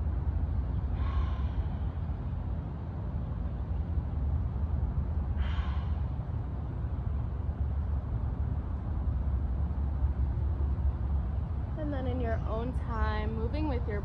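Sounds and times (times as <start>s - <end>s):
steady low rumble: 0.0s - 14.0s
person breathing: 0.9s - 2.1s.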